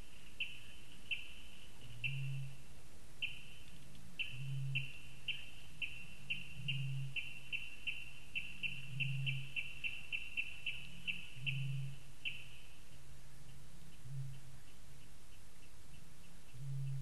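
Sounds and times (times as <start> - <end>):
bird high chirps: 0.3 - 2.5, 3.2 - 12.8
deep booming bird call: 8.6 - 12.0.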